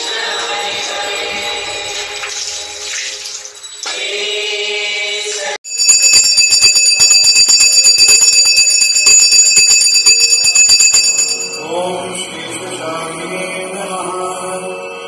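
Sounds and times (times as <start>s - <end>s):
chanted mantra: 0.0s - 2.4s, 11.6s - 15.0s
bell ringing rapidly: 5.6s - 12.0s.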